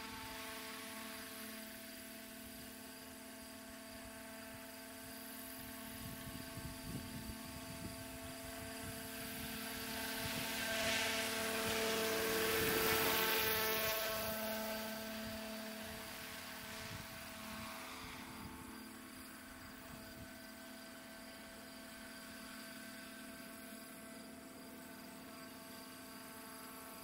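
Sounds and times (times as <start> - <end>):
model helicopter motor whine: 0.0 - 27.0.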